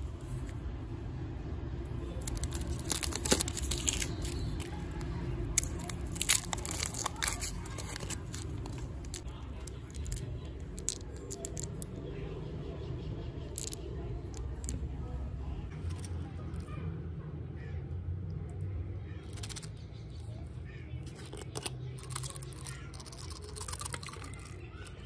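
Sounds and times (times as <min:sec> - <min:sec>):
candy wrapper crinkling and tearing: 0:02.1 - 0:11.8, 0:21.1 - 0:25.0.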